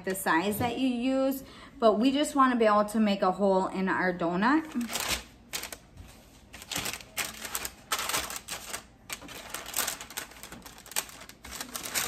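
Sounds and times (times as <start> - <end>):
parchment paper crackling: 4.6 - 12.0.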